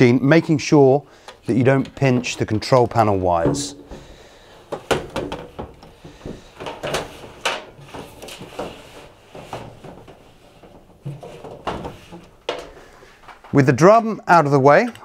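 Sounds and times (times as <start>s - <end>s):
metal drum scraping against casing: 2.0s - 12.9s.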